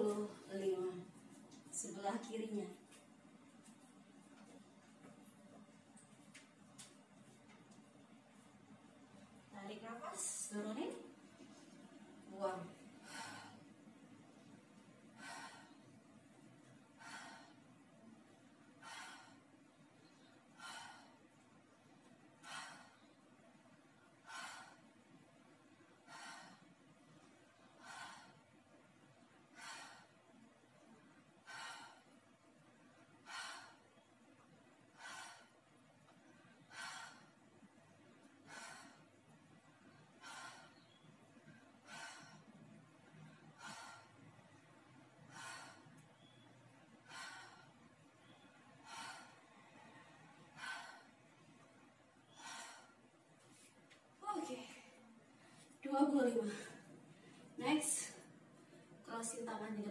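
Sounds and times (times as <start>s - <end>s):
faint steady hum: 0.0s - 59.9s
woman breathing out forcefully: 43.3s - 44.4s, 47.0s - 51.3s, 52.2s - 53.1s.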